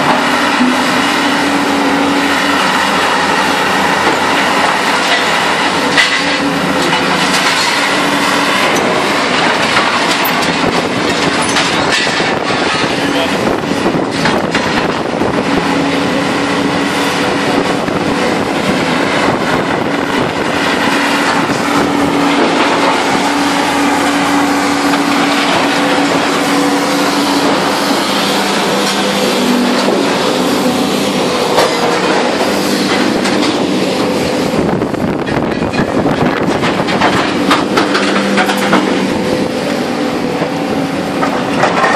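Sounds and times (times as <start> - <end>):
heavy machinery drone: 0.0 - 41.9.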